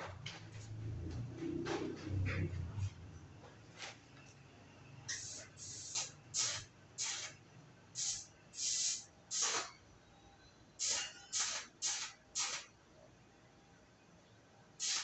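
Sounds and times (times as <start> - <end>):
welding arc hissing bursts: 5.1 - 7.4, 8.0 - 9.8, 10.8 - 12.7, 14.8 - 15.0.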